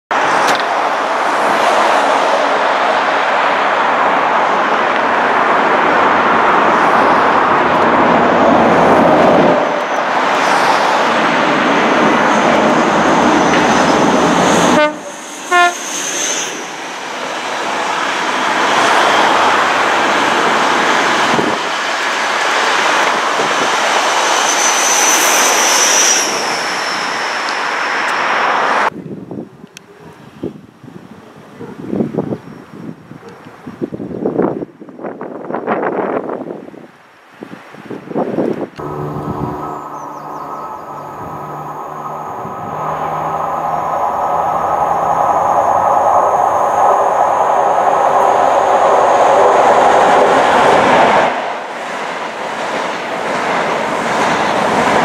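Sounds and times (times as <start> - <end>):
train engine and wheel noise: 0.1 - 55.0
train horn toot: 14.5 - 16.0, 38.8 - 43.4.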